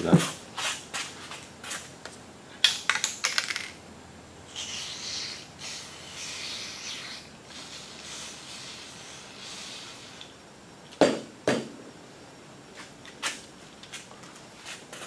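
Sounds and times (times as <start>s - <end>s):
aerosol can spraying hiss: 4.6s - 10.3s.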